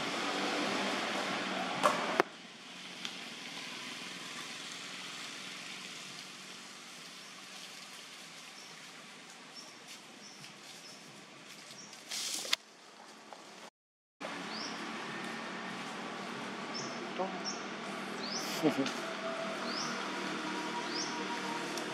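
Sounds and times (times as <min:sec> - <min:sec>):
outdoor background hiss: 0:00.0 - 0:21.9.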